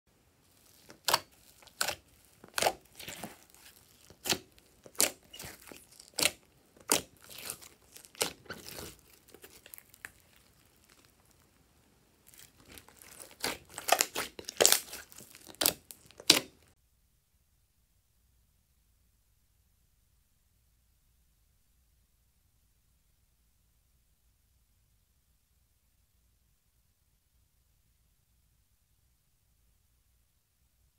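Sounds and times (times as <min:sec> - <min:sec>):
slime popping and crackling: 0:00.5 - 0:11.5, 0:12.2 - 0:16.8.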